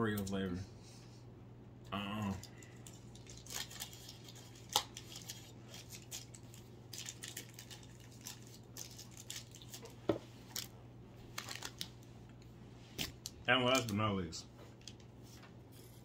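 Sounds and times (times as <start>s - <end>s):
low steady hum: 0.0s - 16.0s
snacks and cup clicking and rustling: 2.4s - 10.7s.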